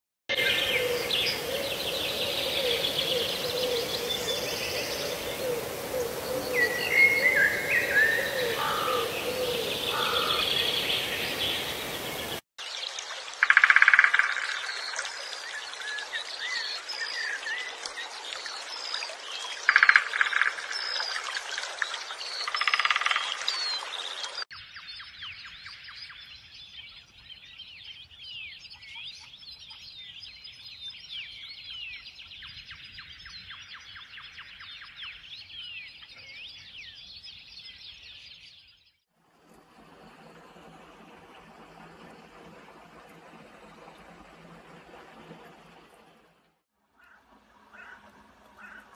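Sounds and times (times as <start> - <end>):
low bird calls: 0.3 - 12.4, 47.0 - 48.9
wild birds chirping and trilling: 0.3 - 12.4, 18.8 - 39.0, 47.0 - 48.9.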